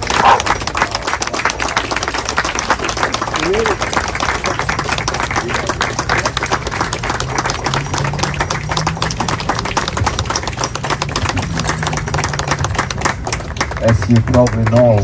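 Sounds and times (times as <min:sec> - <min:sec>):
group of people clapping: 0:00.0 - 0:15.0.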